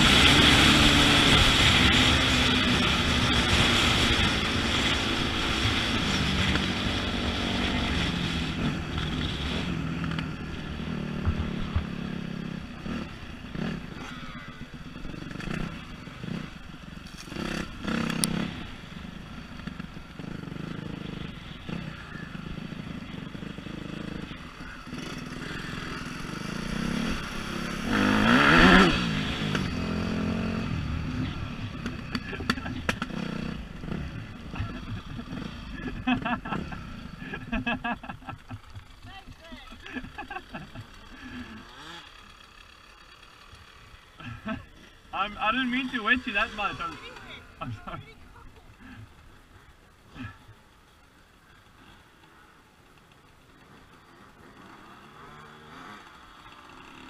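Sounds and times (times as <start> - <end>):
dirt bike engine revving: 0.0 - 50.6, 53.6 - 57.0.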